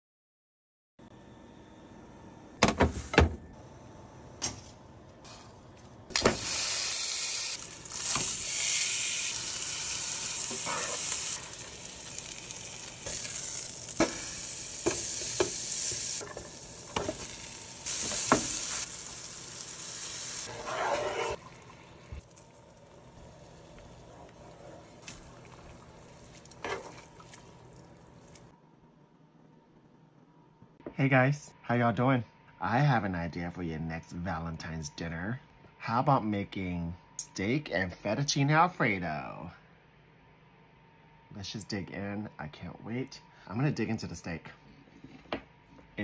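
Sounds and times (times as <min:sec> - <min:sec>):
steak sizzling in a frying pan: 0:06.4 - 0:20.5.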